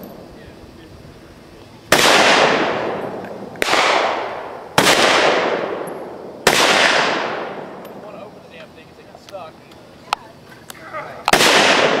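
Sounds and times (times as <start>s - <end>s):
gunshots with long echo: 1.9s - 8.0s, 11.3s - 12.0s.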